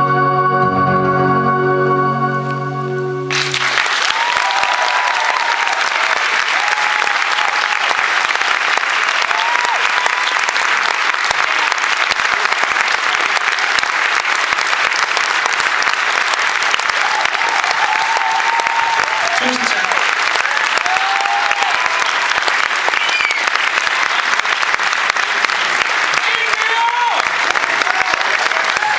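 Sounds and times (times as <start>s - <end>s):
keyboard chord: 0.0s - 3.8s
audience applause: 3.3s - 28.9s
high whoops: 3.8s - 8.0s, 9.2s - 10.5s, 16.9s - 23.6s, 26.5s - 28.9s.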